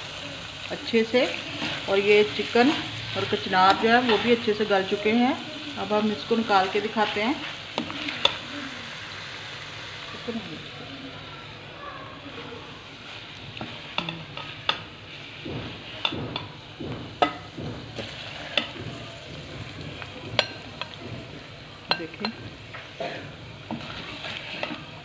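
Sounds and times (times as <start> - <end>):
metal spoon scraping a pot: 1.3 - 4.6, 18.0 - 18.8, 23.6 - 25.0.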